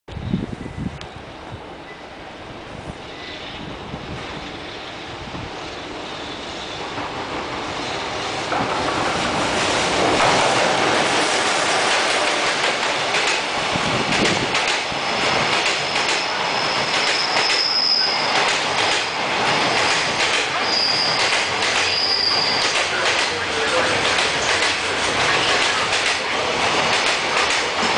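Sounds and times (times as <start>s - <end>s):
freight train passing: 0.2s - 27.9s
rolling train wheels: 1.0s - 27.9s
high wheel squeal: 5.7s - 6.9s, 14.8s - 18.4s, 19.5s - 22.9s
wheels clicking over rail joints: 11.8s - 17.7s.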